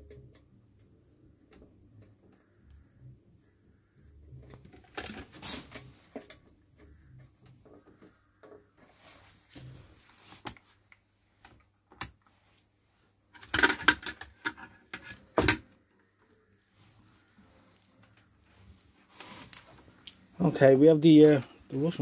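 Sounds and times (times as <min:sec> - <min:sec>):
test leads and plugs rattling: 0:13.4 - 0:15.6.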